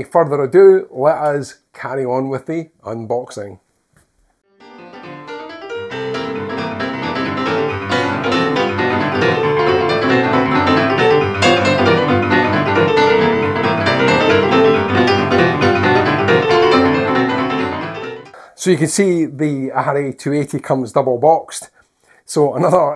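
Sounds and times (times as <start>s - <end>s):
piano music: 4.5s - 18.4s.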